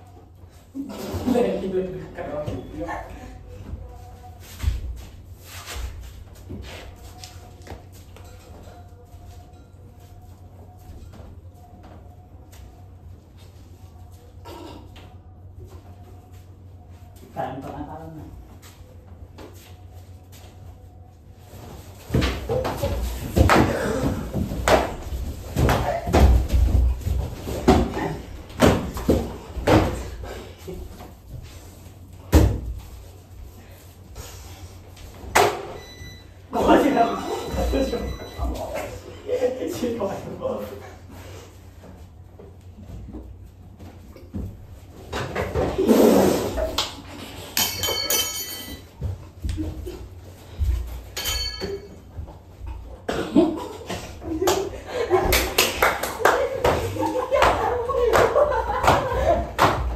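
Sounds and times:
thumps and scuffling: 21.4 - 33.3
people jumping on wooden furniture: 21.8 - 33.0, 48.9 - 59.9.

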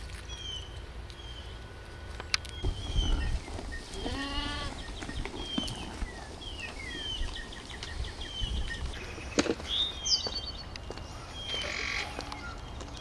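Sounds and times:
small birds chirping: 0.2 - 13.0
sheep bleating: 4.0 - 4.8.

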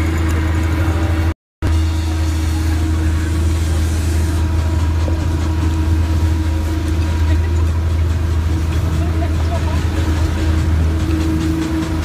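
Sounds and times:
small engine droning: 0.0 - 12.0.

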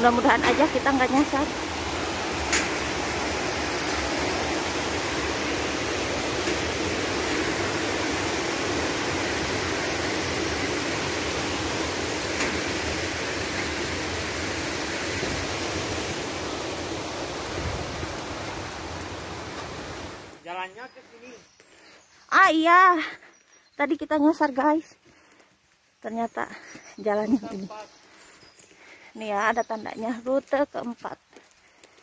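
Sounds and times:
river water rushing over weir: 0.0 - 20.4.

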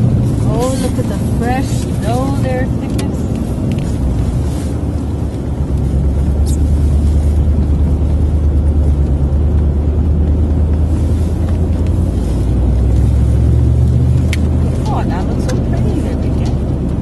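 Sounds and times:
vehicle engine and road rumble: 0.0 - 17.0.

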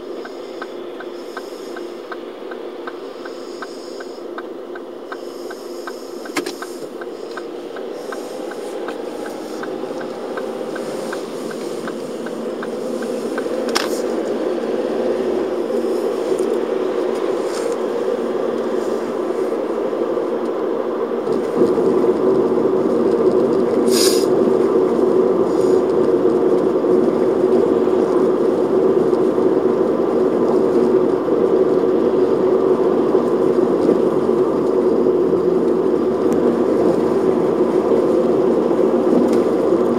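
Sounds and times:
car cabin road and engine noise: 0.0 - 39.9
turn signal ticking: 0.0 - 39.9
tyres on brick paving: 5.1 - 14.4.

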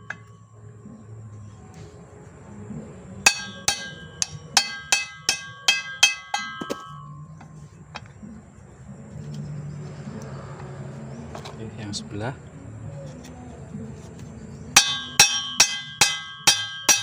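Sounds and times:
hammer striking metal: 0.0 - 0.4, 3.2 - 7.5, 14.8 - 17.0.

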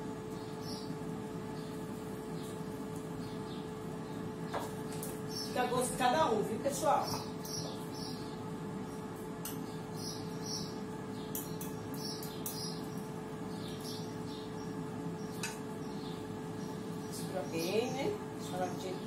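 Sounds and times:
air fryer fan humming: 0.0 - 19.0.

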